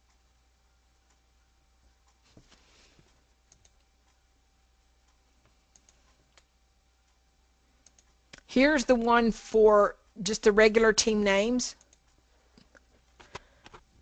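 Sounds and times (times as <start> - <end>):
faint steady hum: 0.0 - 14.0
keyboard and mouse clicks: 3.5 - 3.9, 5.7 - 6.5, 7.8 - 8.5.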